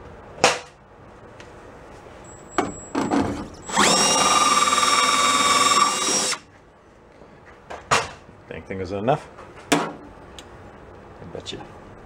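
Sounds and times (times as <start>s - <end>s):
electric drill whining: 3.1s - 6.4s.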